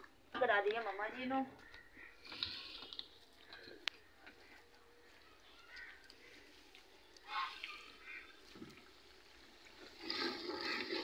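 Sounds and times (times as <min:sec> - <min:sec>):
sloshing sizzle: 0:06.2 - 0:11.0.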